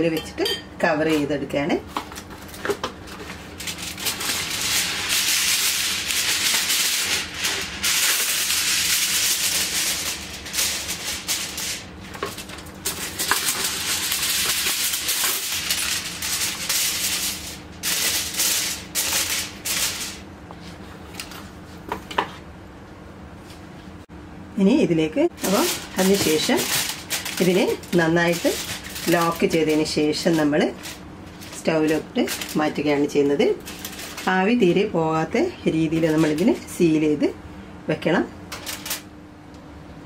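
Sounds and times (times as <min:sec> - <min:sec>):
aluminium foil crinkling: 0:01.1 - 0:20.3, 0:25.4 - 0:36.8, 0:38.5 - 0:39.1.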